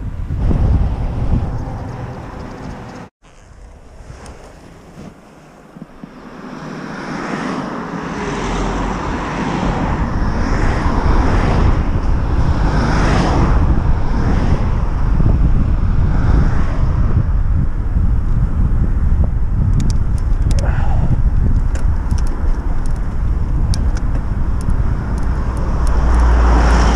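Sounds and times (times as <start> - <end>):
wind rumble on microphone: 0.0 - 26.9
cars passing: 0.2 - 3.1, 5.6 - 18.0, 21.8 - 26.9.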